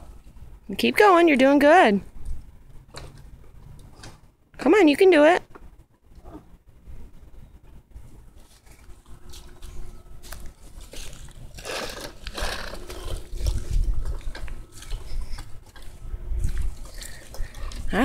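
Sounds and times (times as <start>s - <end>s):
bicycle wheels rattling on concrete: 10.8s - 16.0s.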